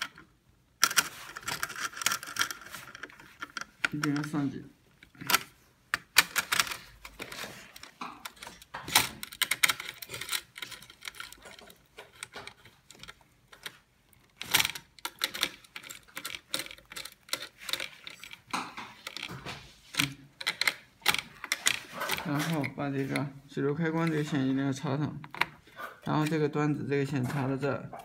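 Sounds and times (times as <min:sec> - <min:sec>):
screwdriver metal clicks and scrapes: 0:05.0 - 0:24.4.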